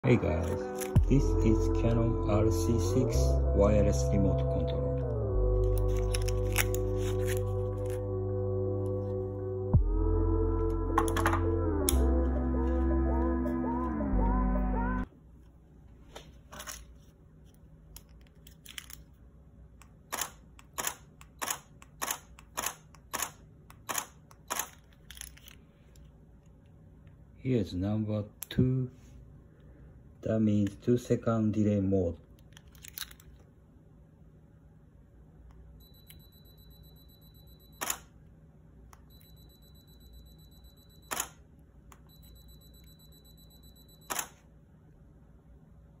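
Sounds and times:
camera shutter clicks: 20.1s - 24.8s, 41.1s - 41.4s, 44.1s - 44.4s
high steady timer beep: 35.8s - 37.9s, 39.0s - 41.2s, 42.0s - 44.2s.

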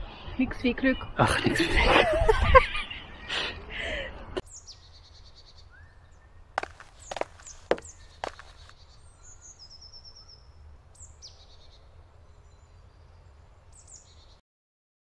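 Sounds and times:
small birds calling: 4.4s - 14.4s.

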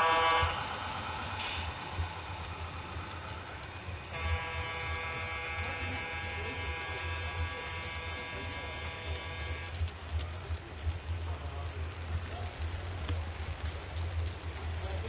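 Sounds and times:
steady electric buzz: 0.0s - 10.9s
low steady hum: 0.0s - 15.0s.

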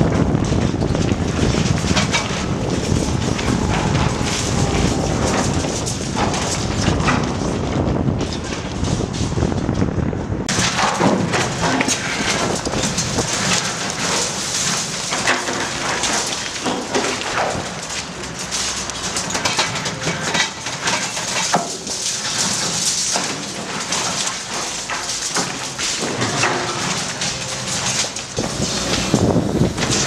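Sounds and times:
concrete crushing and clattering: 0.0s - 9.8s, 10.4s - 30.0s
excavator engine running: 0.0s - 30.0s.

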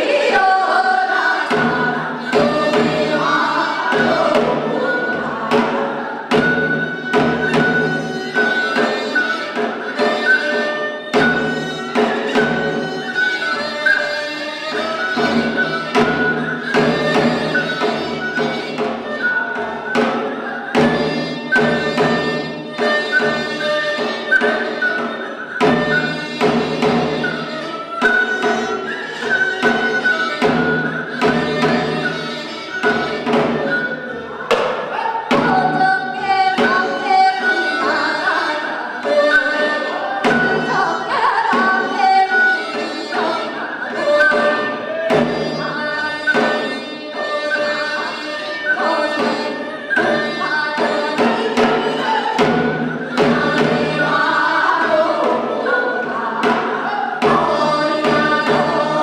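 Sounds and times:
hourglass drum beat: 0.0s - 13.2s.

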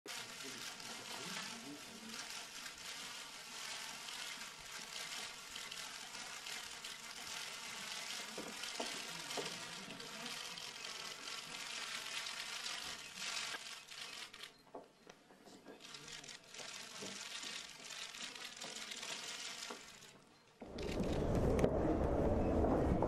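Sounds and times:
camera shutters clicking rapidly: 2.1s - 14.6s, 15.8s - 20.1s.

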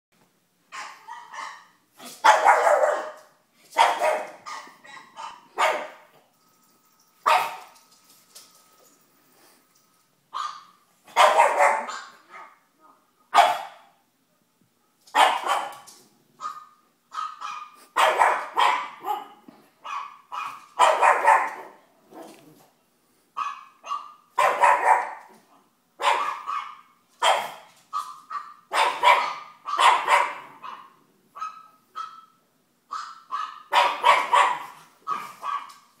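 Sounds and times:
puppy barking: 0.7s - 6.1s, 7.2s - 7.7s, 10.3s - 12.6s, 13.3s - 14.0s, 15.1s - 22.3s, 23.4s - 25.3s, 26.0s - 36.0s.

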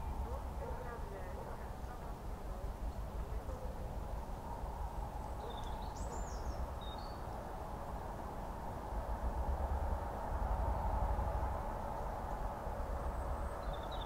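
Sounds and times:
low rumble and hiss: 0.0s - 14.0s
small bird chirping: 5.2s - 7.3s, 13.2s - 14.0s.

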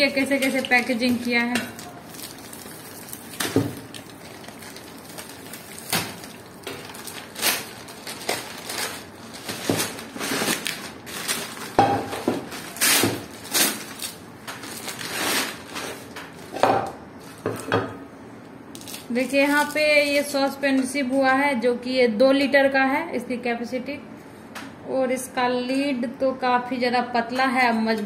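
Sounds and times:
plastic wrapping crinkling: 0.0s - 16.6s, 18.7s - 20.4s.

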